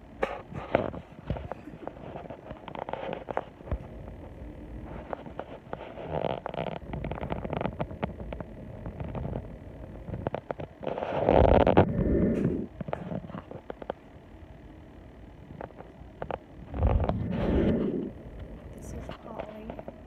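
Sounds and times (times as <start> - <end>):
fabric rubbing against microphone: 0.2 - 3.7, 4.8 - 7.9, 10.0 - 13.6, 16.7 - 18.2.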